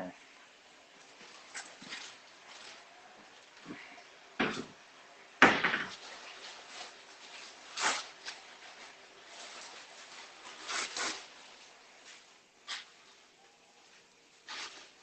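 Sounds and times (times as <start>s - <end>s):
knocks and clatters: 5.4s - 6.0s.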